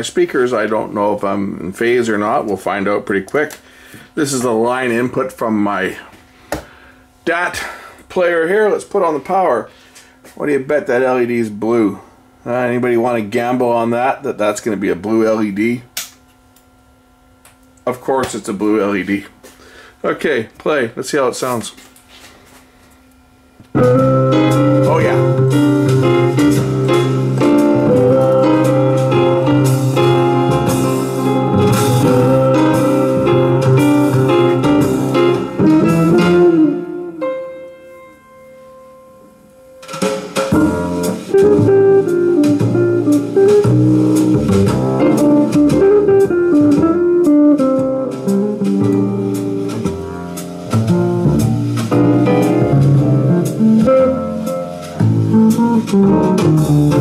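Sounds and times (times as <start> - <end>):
guitar-led music with drums: 23.7 - 38.1, 39.7 - 57.0.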